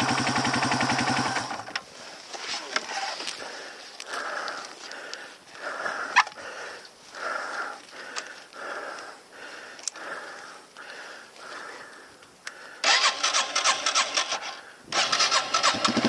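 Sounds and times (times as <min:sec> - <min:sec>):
heavy quick breathing: 0:02.0 - 0:13.0.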